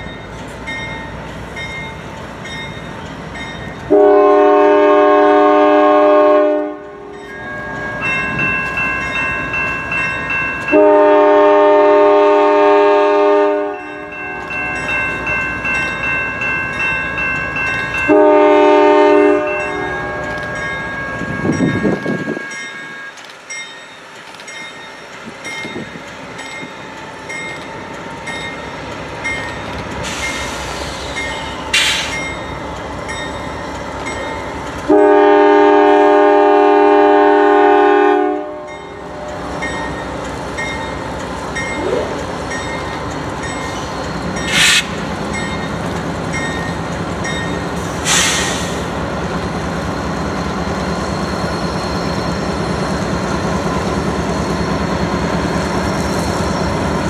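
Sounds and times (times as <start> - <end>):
train rumble: 0.0 - 57.0
locomotive air horn blasts: 3.9 - 7.0, 10.7 - 14.1, 18.1 - 19.7, 34.9 - 38.8
locomotive bell ringing rapidly: 7.2 - 10.8, 38.7 - 44.6.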